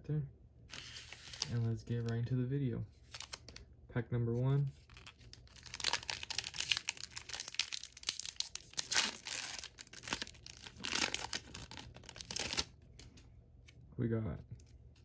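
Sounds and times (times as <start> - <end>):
wrapper tearing and crinkling: 3.1 - 3.6, 4.8 - 12.7.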